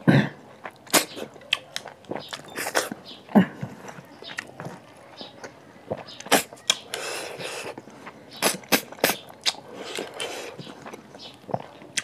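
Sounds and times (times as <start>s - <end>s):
wet eating smacks and slurps: 0.6s - 3.0s, 5.4s - 12.0s.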